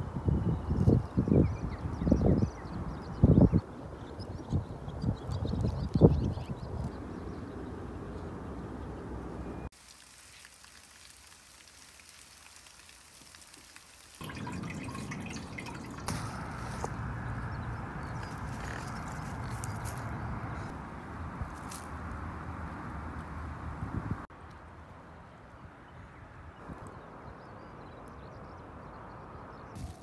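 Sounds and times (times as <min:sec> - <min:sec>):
wind on microphone: 0:00.0 - 0:08.4, 0:23.6 - 0:24.3
water trickling and splashing: 0:09.7 - 0:20.6.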